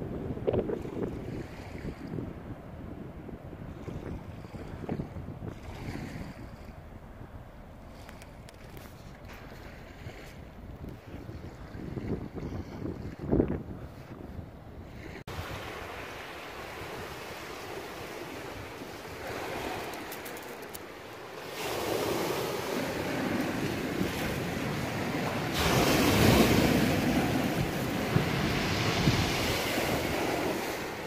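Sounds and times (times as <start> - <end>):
wind on microphone: 0.0 - 31.0
sea washing on shingle: 15.6 - 31.0.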